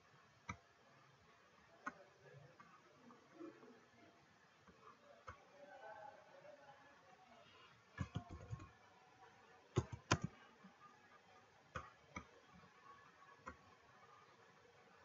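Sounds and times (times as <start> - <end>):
keyboard keystrokes: 8.0 - 8.7, 9.8 - 10.3
mouse clicks: 9.8 - 10.4.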